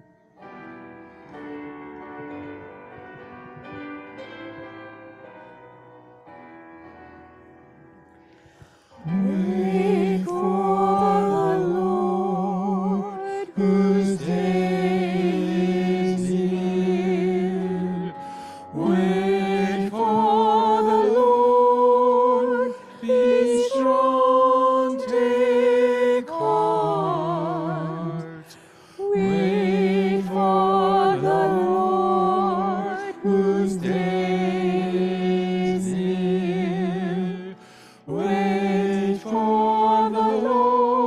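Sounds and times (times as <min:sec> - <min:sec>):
person singing a hymn: 0:08.4 - 0:41.0.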